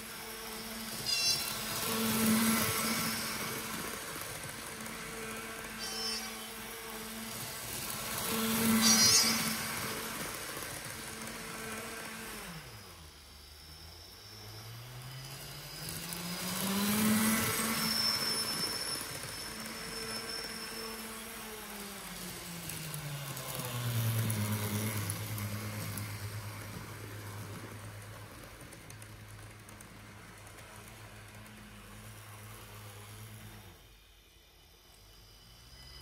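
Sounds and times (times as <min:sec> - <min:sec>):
electric motor hum from speaker: 0:00.0 - 0:27.8.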